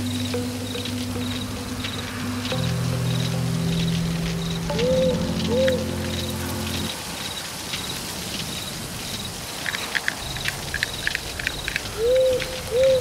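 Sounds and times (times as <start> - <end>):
insect chirps: 0.0 - 13.0
steady hiss: 0.0 - 13.0
sharp clicks: 0.3 - 13.0
owl hooting: 4.4 - 6.9, 12.0 - 13.0.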